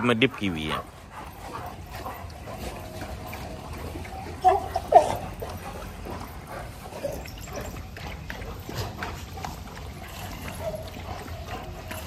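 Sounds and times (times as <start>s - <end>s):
dogs lapping and eating: 0.0s - 12.0s.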